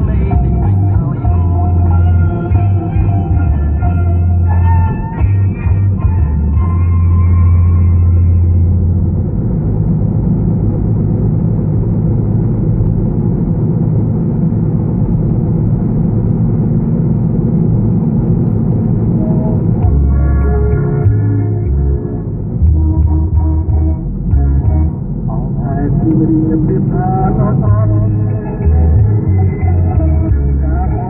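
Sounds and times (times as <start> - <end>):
music: 0.0 - 9.3, 19.1 - 31.0
road and engine noise inside car: 0.0 - 31.0.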